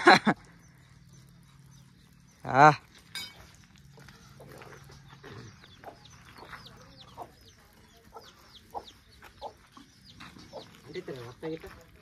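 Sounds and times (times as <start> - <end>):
chicken clucking: 4.4 - 11.2.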